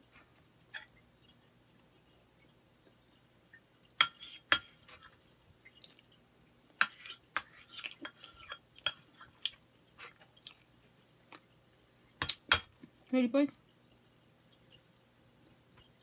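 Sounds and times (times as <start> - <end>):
metal spoon clinking on plate: 12.2 - 12.7.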